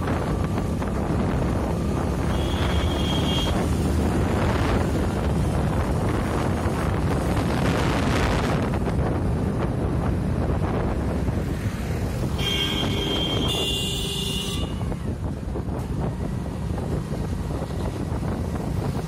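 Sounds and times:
wind buffeting microphone: 0.0s - 2.8s, 3.4s - 13.6s, 14.6s - 19.0s
vehicle rumble: 0.0s - 19.0s
vehicle horn: 2.2s - 3.7s, 12.4s - 14.9s.

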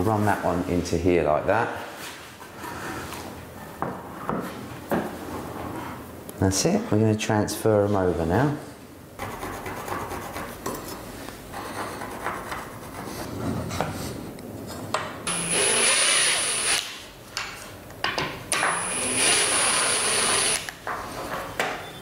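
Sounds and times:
cordless drill whining: 15.3s - 16.9s, 18.6s - 20.7s
drill boring into wood: 15.3s - 16.9s, 18.6s - 20.7s.

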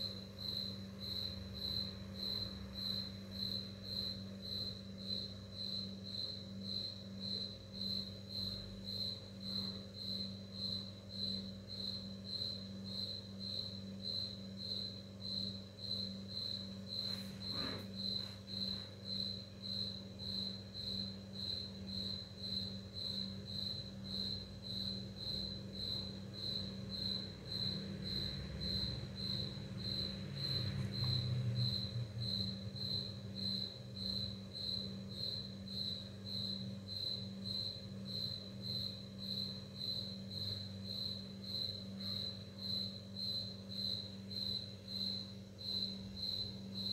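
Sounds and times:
cricket-like chirping: 0.0s - 46.9s
motorbike passing: 27.6s - 32.5s.

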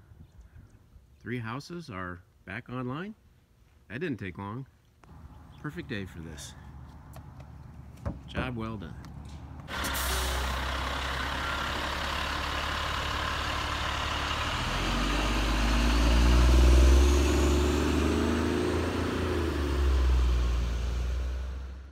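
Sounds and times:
truck engine rumble: 5.0s - 21.9s.

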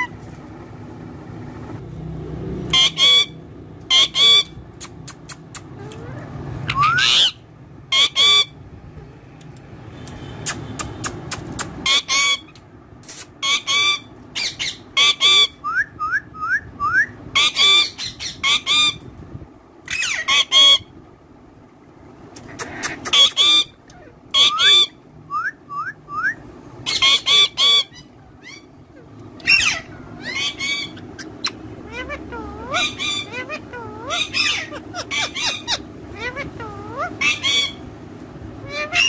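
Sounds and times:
parakeet squawking and chirping: 0.0s - 0.2s, 2.7s - 8.6s, 10.5s - 19.1s, 19.8s - 21.0s, 22.4s - 37.9s, 38.6s - 39.0s.

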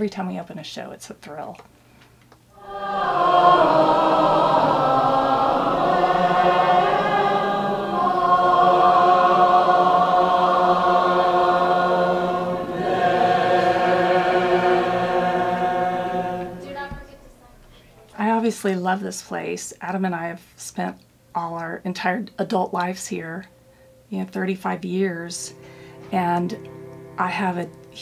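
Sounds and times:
group singing in harmony: 2.6s - 17.0s, 25.4s - 28.0s.

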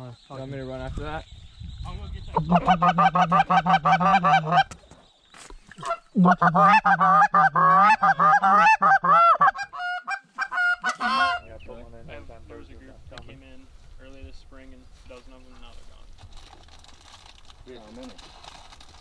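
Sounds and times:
goose call clucking and honking: 2.4s - 4.8s, 5.8s - 11.5s.

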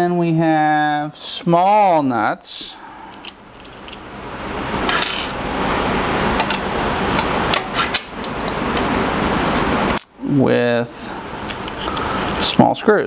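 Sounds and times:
small metal parts clinking: 3.1s - 4.0s.

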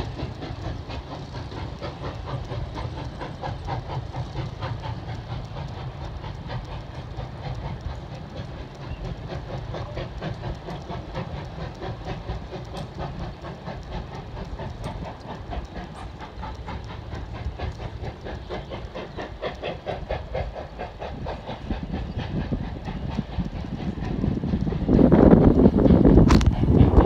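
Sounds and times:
steam hiss: 0.0s - 27.0s
train wheels clicking over rail joints: 0.0s - 27.0s.

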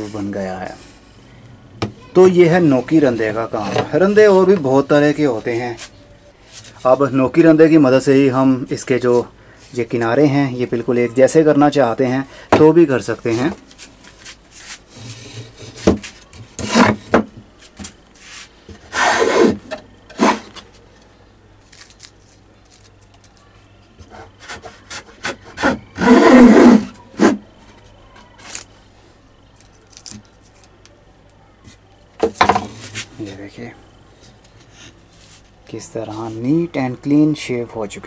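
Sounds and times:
hand plane scraping wood: 16.6s - 17.0s, 18.2s - 20.6s, 24.0s - 27.4s.

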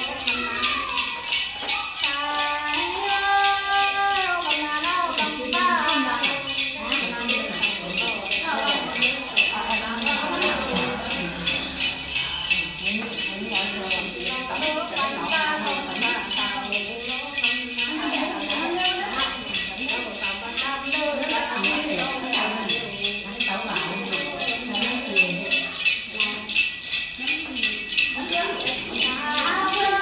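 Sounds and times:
jingle bells shaken rhythmically: 0.0s - 30.0s
person chanting: 2.0s - 16.8s.

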